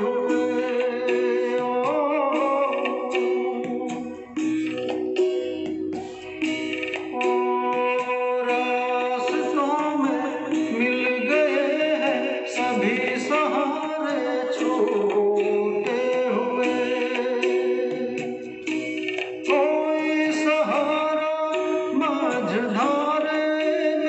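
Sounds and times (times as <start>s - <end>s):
wavering melodic lead line: 0.0s - 24.0s.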